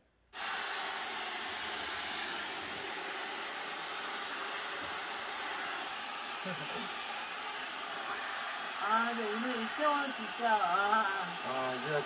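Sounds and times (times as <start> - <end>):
hair dryer blowing: 0.4 - 12.0.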